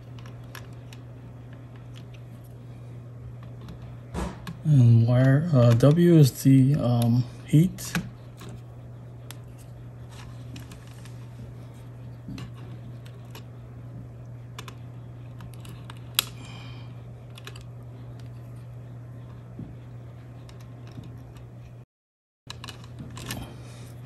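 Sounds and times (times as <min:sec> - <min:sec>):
steady low hum: 0:00.0 - 0:21.9, 0:22.5 - 0:24.0.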